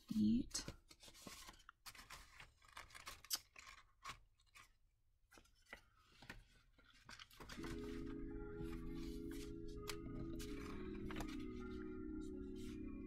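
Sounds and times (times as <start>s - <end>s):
paper rustling and flicking: 0.6s - 12.9s
soft music: 7.4s - 13.0s
soft clicks of cards set down: 9.8s - 11.8s.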